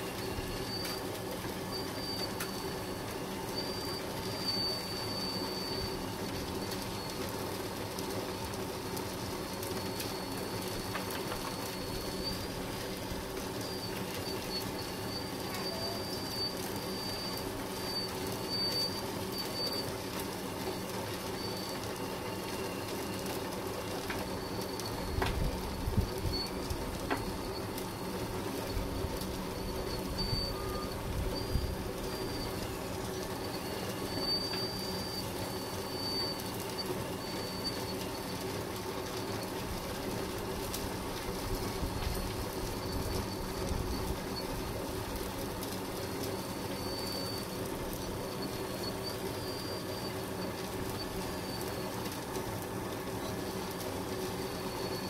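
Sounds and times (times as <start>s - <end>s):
thin high whine: 13.5s - 19.8s, 24.4s - 38.0s.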